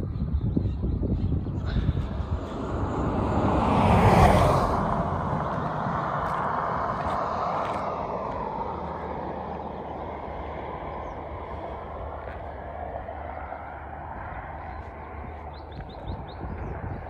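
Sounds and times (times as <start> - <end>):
steady low rumble: 0.0 - 17.0
passing car tyre noise: 1.4 - 17.0.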